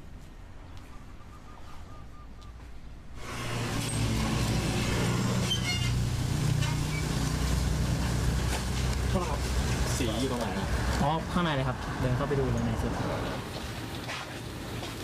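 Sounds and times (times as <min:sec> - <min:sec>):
quiet street ambience: 0:00.0 - 0:15.0
vehicle engine running: 0:03.2 - 0:11.0.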